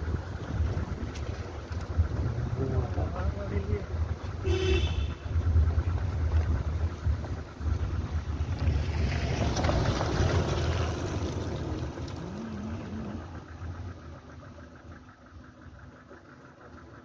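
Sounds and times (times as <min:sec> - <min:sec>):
wind buffeting microphone: 0:00.0 - 0:04.3, 0:05.0 - 0:12.4
engine and tyre rumble: 0:00.0 - 0:17.0.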